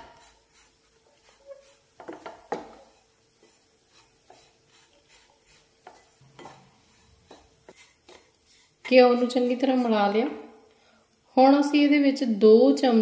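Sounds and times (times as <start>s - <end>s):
wooden spatula scraping metal pan: 0.0s - 10.5s.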